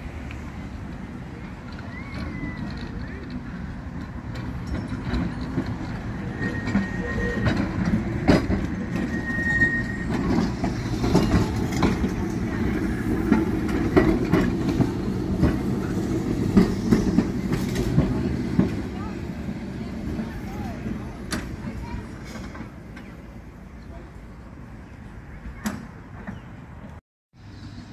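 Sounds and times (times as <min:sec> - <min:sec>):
tram wheels rumbling: 0:00.0 - 0:27.9
wheels knocking over rail joints: 0:01.6 - 0:23.2
thin high squeal: 0:09.0 - 0:10.2.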